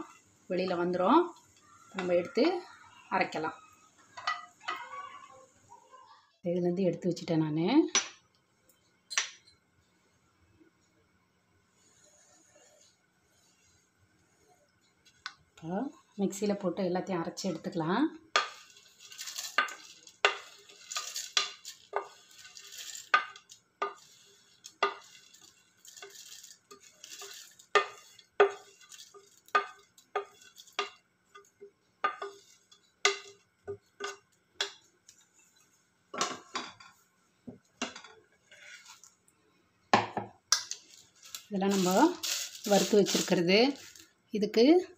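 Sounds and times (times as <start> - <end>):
spatula scraping and tapping a plate: 18.3 - 39.1, 40.1 - 44.0
pieces dropping into steel jar: 40.7 - 44.0.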